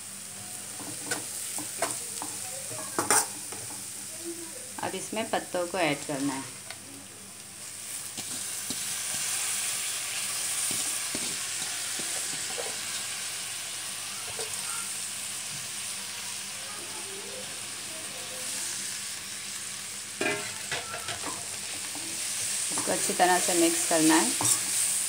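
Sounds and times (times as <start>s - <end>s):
leaves sizzling in hot oil: 0.0s - 25.0s
metal spatula scraping pan: 20.2s - 24.8s.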